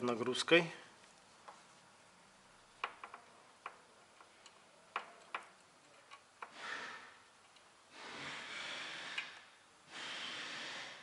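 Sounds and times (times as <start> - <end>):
test leads clicking and tapping: 2.8 - 6.6
breathing-like hiss: 6.4 - 7.2, 7.9 - 11.0.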